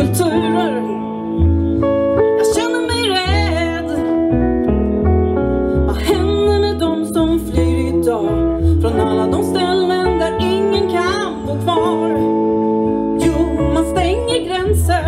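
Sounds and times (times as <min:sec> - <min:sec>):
bass guitar: 0:00.0 - 0:15.0
guitar chords: 0:00.0 - 0:15.0
wavering melodic lead line: 0:00.0 - 0:15.0.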